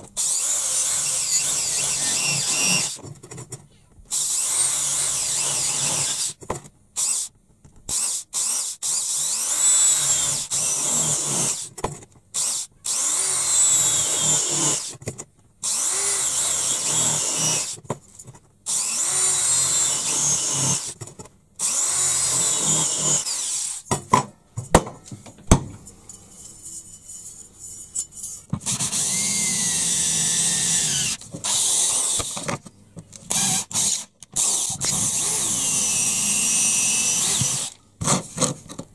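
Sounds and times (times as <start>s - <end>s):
electric drill boring sheet steel: 0.2s - 3.0s, 4.1s - 6.4s, 7.0s - 7.3s, 7.9s - 11.7s, 12.4s - 14.9s, 15.6s - 17.8s, 18.7s - 21.0s, 21.6s - 23.8s, 28.6s - 32.4s, 33.3s - 37.8s.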